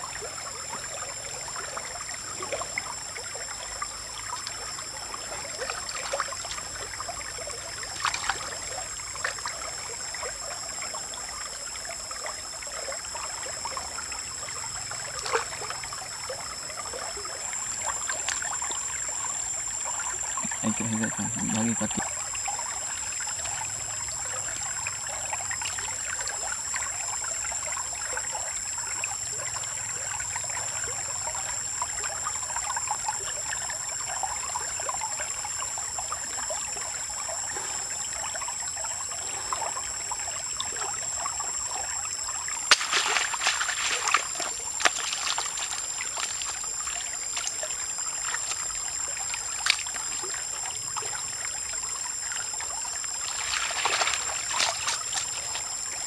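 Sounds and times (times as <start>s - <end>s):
stream trickling over pebbles: 0.0s - 56.0s
hands splashing in water: 42.7s - 47.6s, 53.3s - 55.7s.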